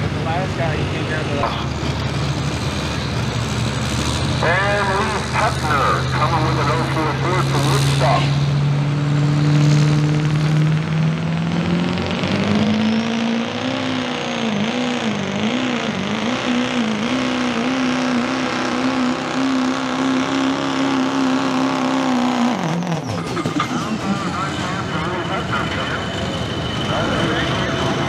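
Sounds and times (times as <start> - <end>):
diesel engine at full throttle: 0.0 - 28.0.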